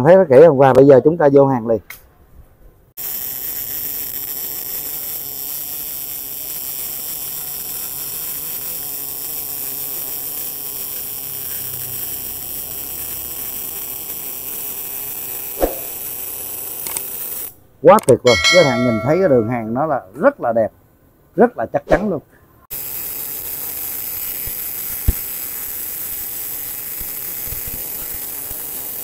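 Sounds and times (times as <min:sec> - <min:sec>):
welding arc hissing: 0:03.0 - 0:17.5, 0:22.7 - 0:29.0.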